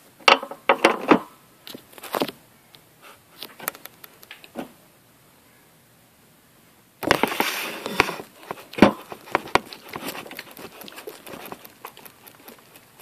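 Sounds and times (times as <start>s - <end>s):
plastic packaging rustling: 7.0s - 13.0s
sharp clicks and knocks: 7.0s - 13.0s.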